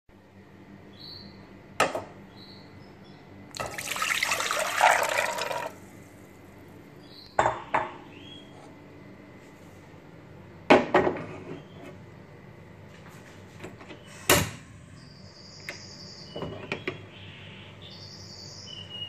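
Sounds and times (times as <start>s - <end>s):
water pouring into a pot: 3.6s - 5.8s
kitchenware clunks: 10.7s - 11.4s.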